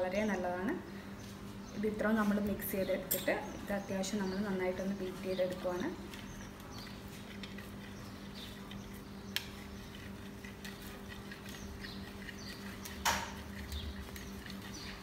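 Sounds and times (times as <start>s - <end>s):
whisk beating in a metal bowl: 9.4s - 15.0s.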